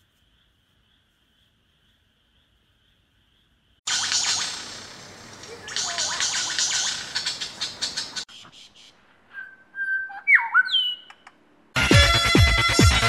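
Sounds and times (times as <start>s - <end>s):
lyrebird scratchy chatter: 5.4s - 8.3s.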